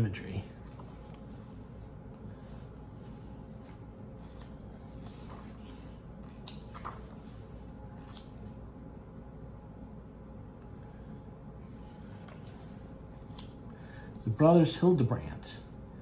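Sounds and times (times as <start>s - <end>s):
book pages rustling: 0.6s - 8.6s, 11.6s - 14.4s.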